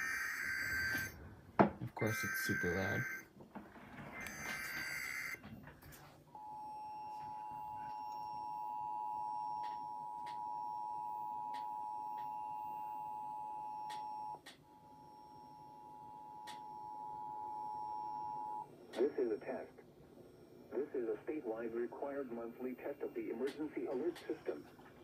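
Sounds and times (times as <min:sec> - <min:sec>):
two-tone attention signal: 0:00.0 - 0:01.2, 0:02.0 - 0:03.3.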